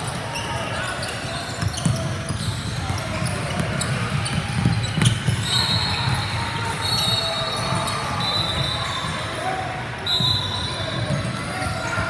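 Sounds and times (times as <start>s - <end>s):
sneakers squeaking: 0.0s - 12.0s
basketball bouncing on floor: 3.5s - 5.4s.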